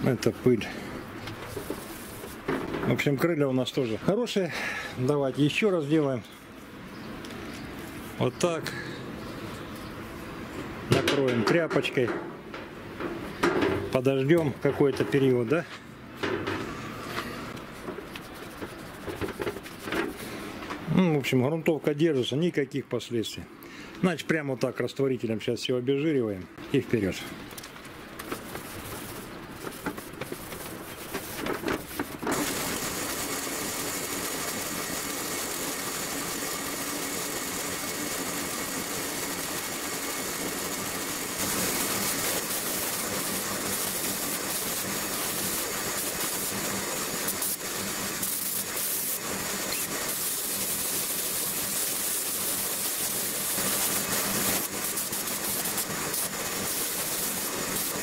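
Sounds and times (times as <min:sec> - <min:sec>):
spray gun air hissing: 0:01.5 - 0:02.4, 0:28.3 - 0:31.4, 0:32.3 - 0:58.0.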